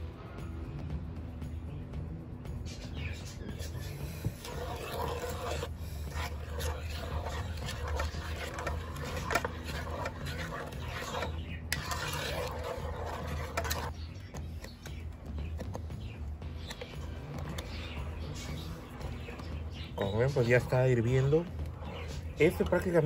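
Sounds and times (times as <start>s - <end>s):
wooden spoon stirring in a pot: 3.6s - 15.9s.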